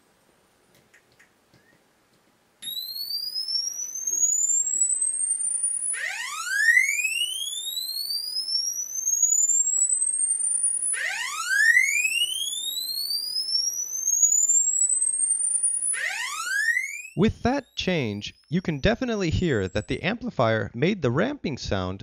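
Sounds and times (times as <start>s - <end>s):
swept sine tone rising to a whistle: 2.6s - 18.5s.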